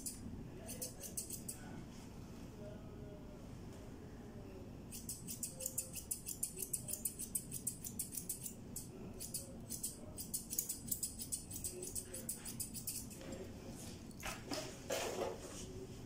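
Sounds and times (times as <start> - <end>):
scissors snipping fur: 0.7 - 1.6, 4.9 - 13.4.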